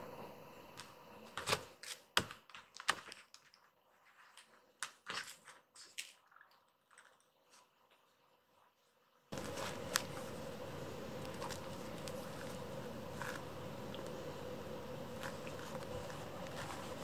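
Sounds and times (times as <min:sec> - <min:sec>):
soft clicks and rustles on bedding: 0:09.3 - 0:10.5.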